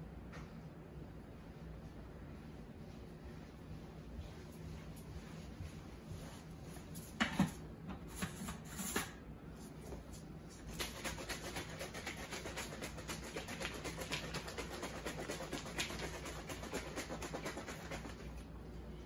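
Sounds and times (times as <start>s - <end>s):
plastic shaker bottle shaken: 10.6s - 18.5s.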